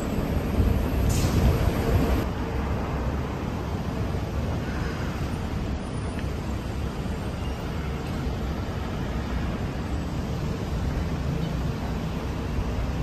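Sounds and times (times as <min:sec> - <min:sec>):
low rumbling noise: 0:00.0 - 0:05.1.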